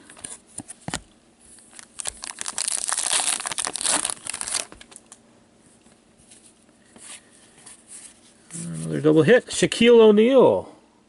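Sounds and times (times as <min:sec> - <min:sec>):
plastic wrapping crackling: 0:01.6 - 0:05.2.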